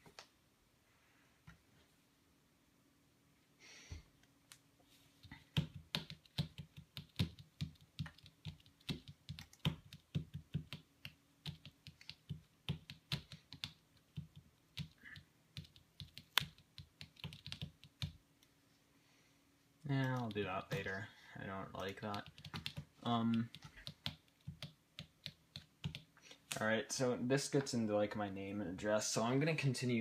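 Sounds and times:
keyboard typing: 5.2s - 18.2s, 19.9s - 21.0s, 21.7s - 26.1s.

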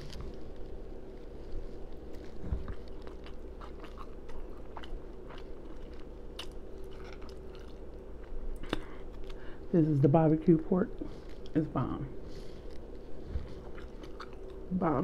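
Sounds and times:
crispy food crunching: 0.0s - 15.0s
chewing and mouth-smacking: 0.1s - 9.4s, 12.4s - 15.0s.

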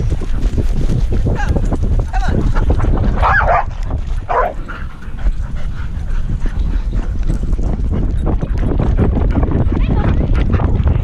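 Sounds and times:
low rumbling and rubbing noise: 0.0s - 11.0s
dog barking: 3.2s - 3.7s, 4.3s - 4.6s.

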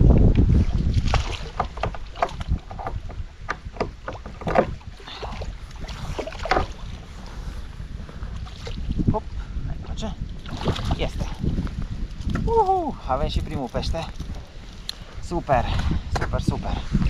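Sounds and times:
wind rumble on microphone: 0.0s - 17.0s
water knocking and splashing: 0.1s - 7.1s, 9.9s - 12.6s.

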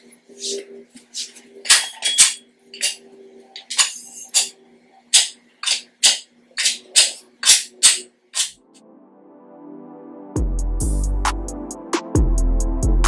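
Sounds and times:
faint background music: 0.0s - 13.0s.

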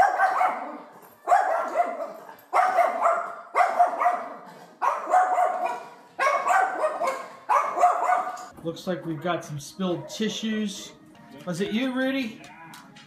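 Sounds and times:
small dog barking: 0.0s - 8.5s.

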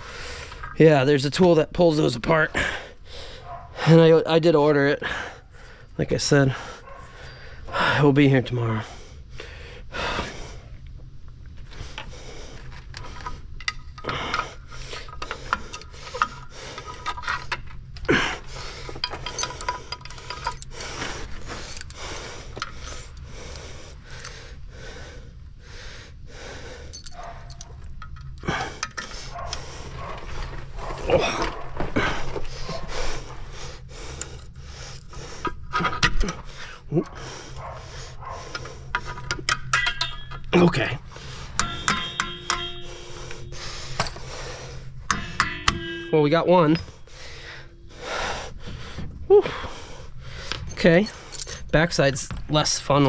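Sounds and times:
heavy breathing: 0.0s - 0.8s, 2.5s - 4.1s, 4.9s - 10.8s, 11.6s - 40.3s, 41.0s - 51.8s
steady low hum: 0.0s - 53.0s
metal brake parts clinking: 12.7s - 18.2s, 18.8s - 22.9s, 26.9s - 30.1s, 38.5s - 48.4s, 50.4s - 53.0s.

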